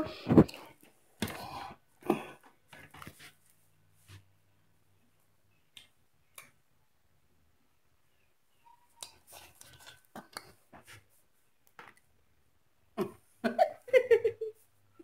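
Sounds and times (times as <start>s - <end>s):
child chewing with mouth smacks: 8.9s - 11.1s.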